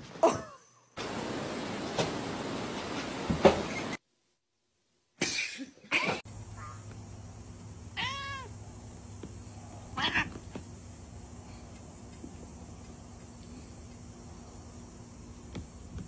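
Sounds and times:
cat meowing: 0:08.0 - 0:08.5, 0:10.0 - 0:10.4.

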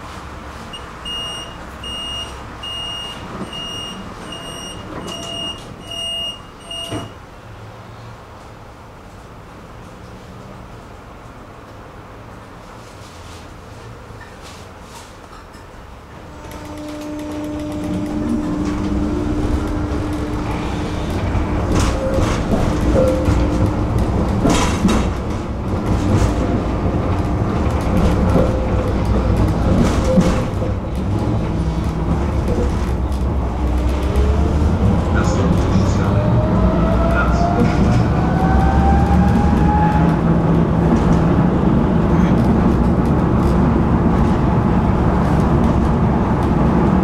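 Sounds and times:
tram rumbling on rails: 0:00.0 - 0:47.0
door warning beeps: 0:00.7 - 0:07.2
wheels clacking over rail joints: 0:15.3 - 0:47.0.

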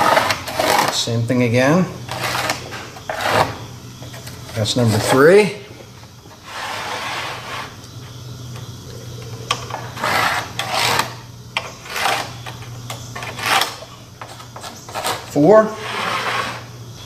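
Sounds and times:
steel square scraping on wood: 0:00.0 - 0:01.0, 0:02.1 - 0:03.6, 0:06.4 - 0:07.8, 0:09.7 - 0:12.6, 0:13.2 - 0:16.7
low steady hum: 0:00.0 - 0:17.0.

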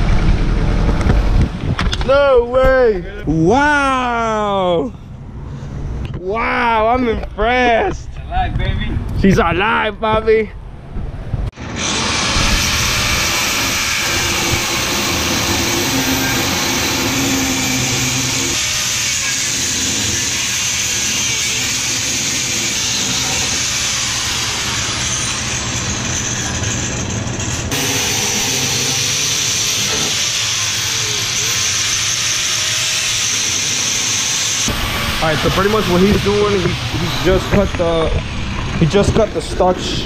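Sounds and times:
angle grinder cutting metal: 0:11.6 - 0:38.7.

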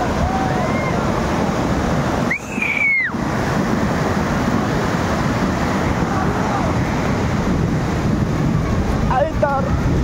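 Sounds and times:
muddy water torrent rushing: 0:00.0 - 0:10.0.

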